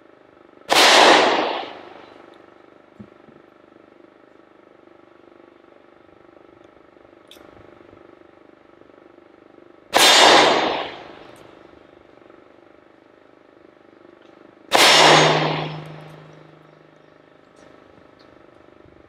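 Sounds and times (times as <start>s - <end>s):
revolver gunshots: 0.7s - 2.2s, 9.9s - 11.6s, 14.7s - 17.0s
steel target ringing: 14.7s - 17.0s.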